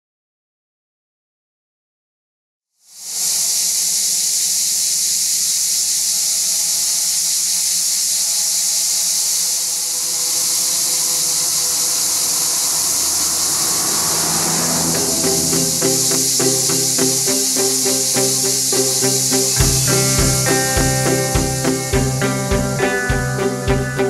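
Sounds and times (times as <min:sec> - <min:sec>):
cicadas singing: 0:03.0 - 0:24.0
passing car: 0:10.8 - 0:23.1.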